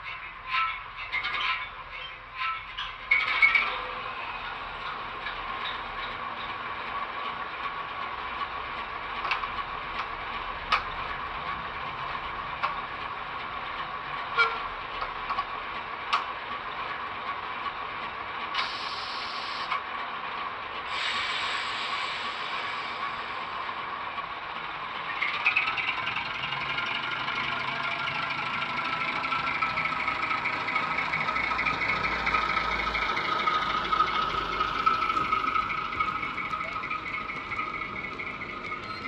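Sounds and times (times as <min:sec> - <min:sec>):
air hiss: 0:18.6 - 0:19.7, 0:20.9 - 0:23.5
diesel shunter idling: 0:21.0 - 0:39.0.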